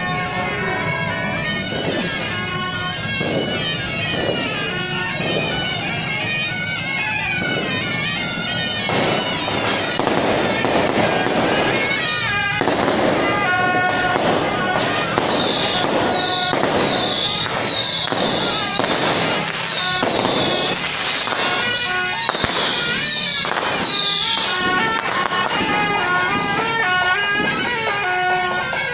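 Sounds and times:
firecrackers crackling: 0.0 - 28.9
shawm playing wavering melody: 0.0 - 28.9
high falling whistle: 15.2 - 19.0, 21.8 - 24.6.

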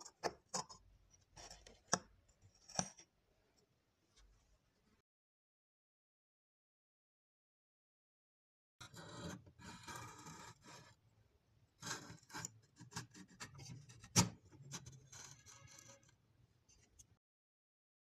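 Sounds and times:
metal scraping on steel tube: 14.2 - 16.2.

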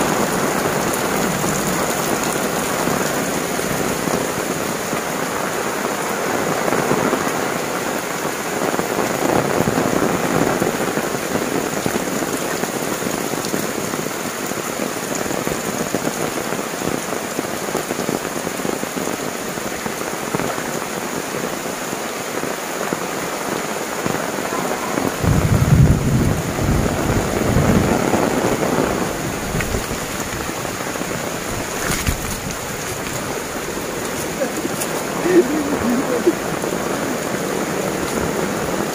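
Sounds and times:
heavy rain on roofs and leaves: 0.0 - 38.9
deep rumble: 25.1 - 27.9.

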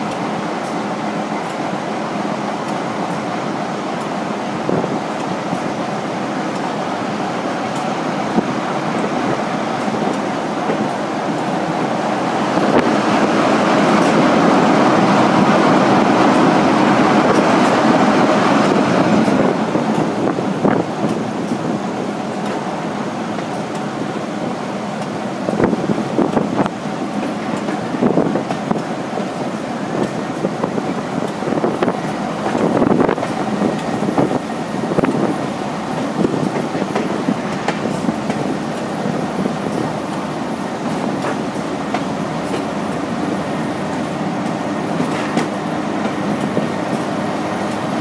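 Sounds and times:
train engine and wheel noise: 0.0 - 48.0
wheels clicking over rail joints: 25.0 - 48.0.

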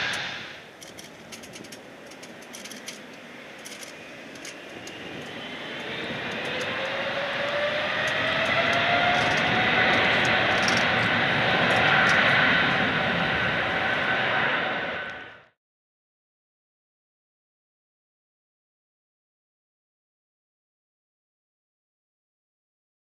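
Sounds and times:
jet engine whine rising in pitch: 0.0 - 15.6
rushing jet engine noise: 0.0 - 15.6.

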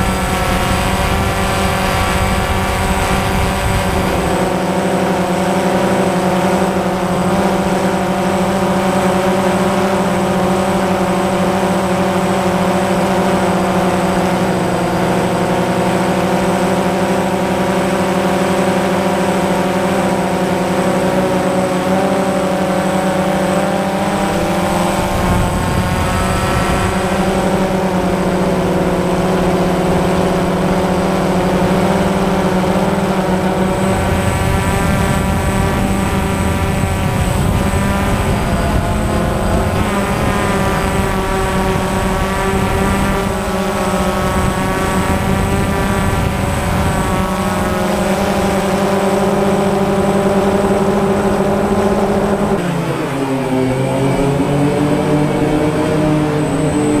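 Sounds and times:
drone propellers humming: 0.0 - 57.0.

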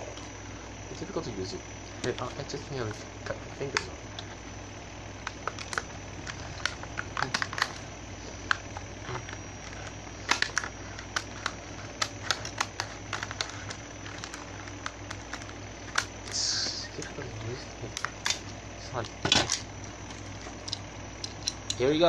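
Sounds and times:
scissors cutting plastic: 5.2 - 7.8, 8.4 - 17.2.

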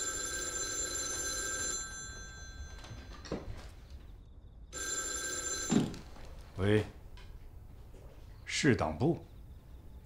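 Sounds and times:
telephone bell ringing: 0.0 - 3.7, 4.7 - 6.2.

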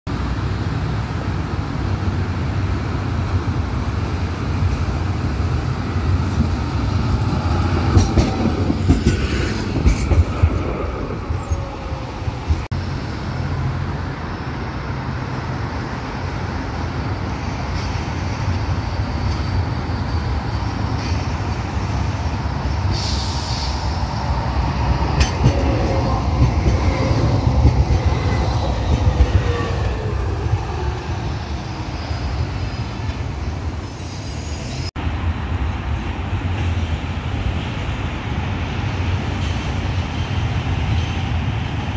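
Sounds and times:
city traffic rumble: 0.1 - 41.9
tram wheels rumbling on rail: 0.1 - 41.9
wheel squeal: 29.1 - 34.9.

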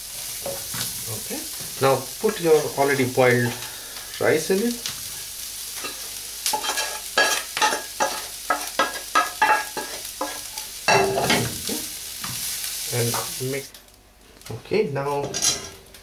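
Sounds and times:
spatula scraping and knocking pan: 5.8 - 11.5.

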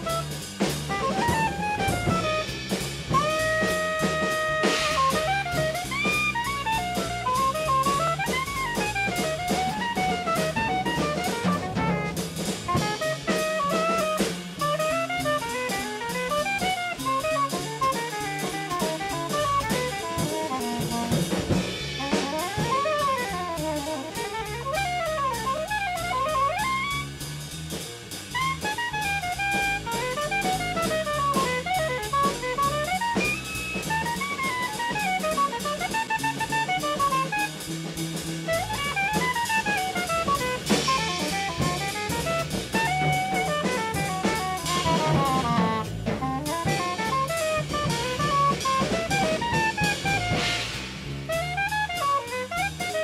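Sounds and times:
drum kit: 0.0 - 53.0
saxophone playing fast phrases: 0.0 - 53.0
walking bass line: 0.0 - 53.0.

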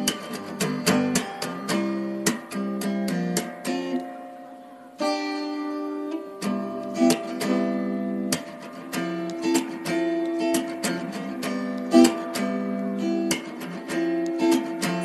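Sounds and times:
acoustic guitar strumming: 0.0 - 15.0.

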